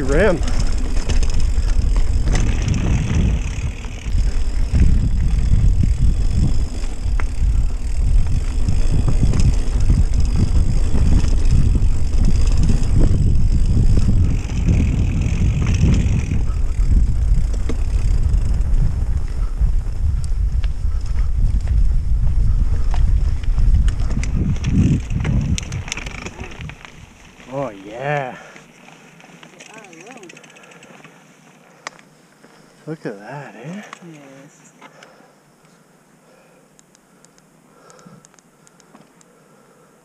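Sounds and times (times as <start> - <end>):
wind buffeting microphone: 0.0 - 27.9
bike tires rumbling and rattling: 0.0 - 34.2.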